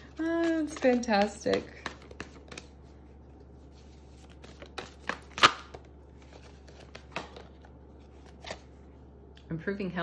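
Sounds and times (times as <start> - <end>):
cards snapping and flicking: 4.5 - 5.8.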